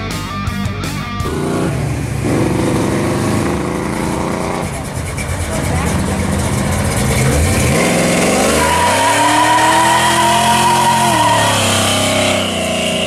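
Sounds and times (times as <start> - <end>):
car engine accelerating hard: 1.2 - 13.0
tires squealing: 1.3 - 13.0.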